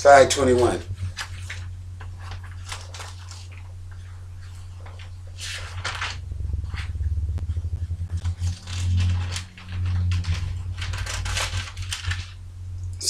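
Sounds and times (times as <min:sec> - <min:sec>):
low hum: 0:00.0 - 0:13.0
thin pages rustling: 0:01.0 - 0:06.9, 0:08.2 - 0:12.4.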